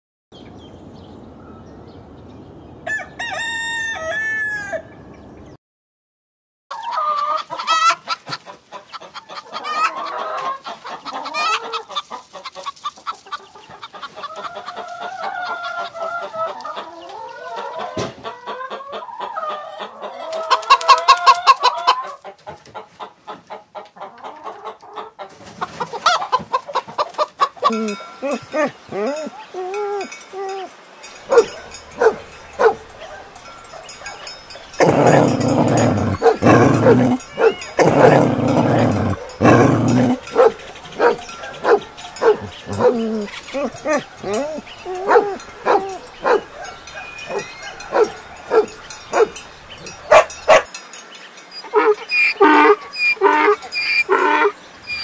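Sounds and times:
rooster crowing: 2.9s - 5.0s, 31.3s - 33.3s, 34.1s - 49.4s
hens clucking and cackling: 6.7s - 50.7s, 51.6s - 55.0s.

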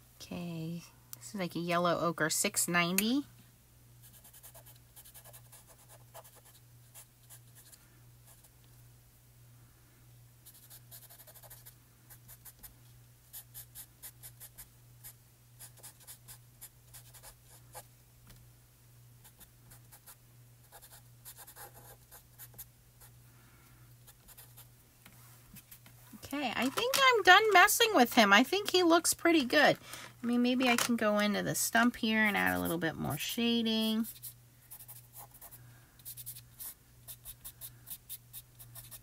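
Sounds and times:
pencil scratching on card: 10.5s - 12.7s, 19.3s - 22.7s, 34.0s - 39.0s.

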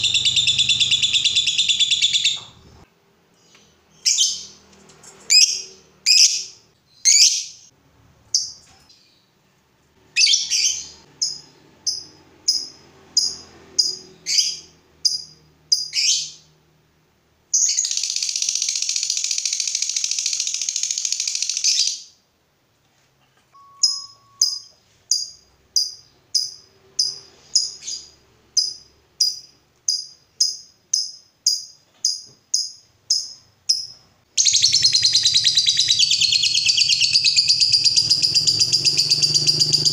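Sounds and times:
bird chattering trill: 0.0s - 2.7s, 33.1s - 39.9s
bird chirping: 0.0s - 9.4s, 10.1s - 16.6s, 17.5s - 22.2s, 23.6s - 39.9s.

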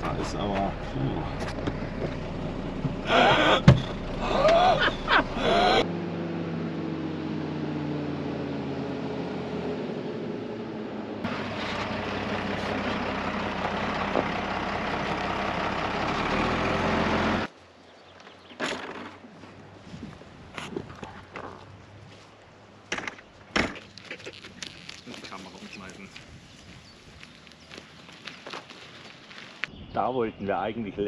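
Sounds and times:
truck diesel engine running: 0.0s - 5.8s, 10.6s - 17.5s.

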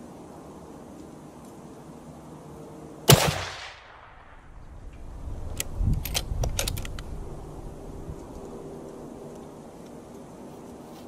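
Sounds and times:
rifle shot: 3.1s - 4.6s
sharp metallic clicks: 5.5s - 7.1s.

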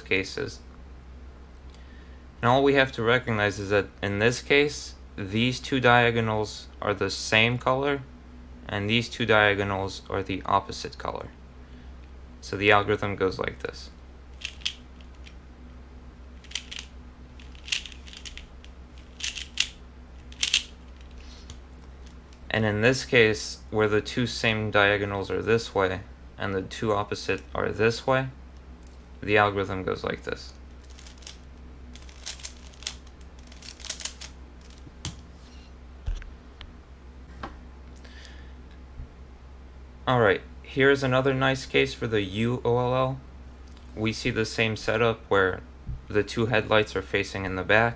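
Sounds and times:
puzzle cube plastic clicks: 16.4s - 21.2s, 32.0s - 34.8s.

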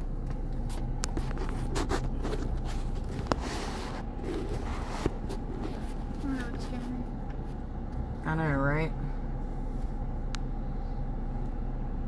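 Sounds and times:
car engine idling hum: 0.0s - 12.0s
light rubbing: 0.6s - 7.6s.

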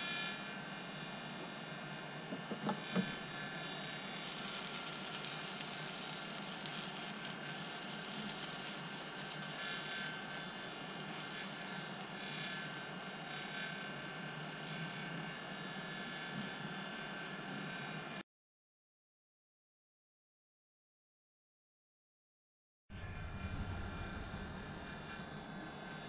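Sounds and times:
electric blower whirring: 2.4s - 17.9s.

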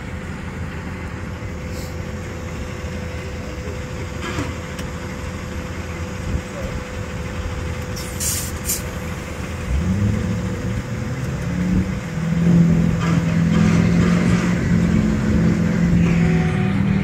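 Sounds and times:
truck engine revving: 0.0s - 17.0s
short hiss: 8.0s - 8.9s.

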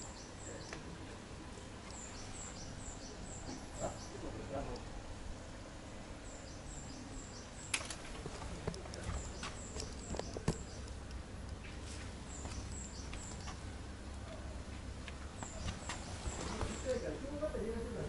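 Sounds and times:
low steady background noise: 0.0s - 18.0s.

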